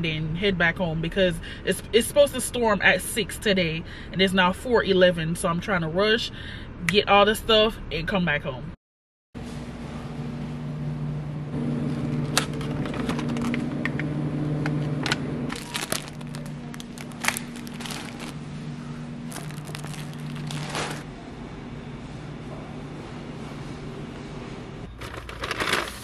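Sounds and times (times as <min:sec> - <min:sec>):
steady low hum: 0:09.4 - 0:24.9
plastic packaging rustling: 0:15.5 - 0:18.4, 0:19.3 - 0:21.0.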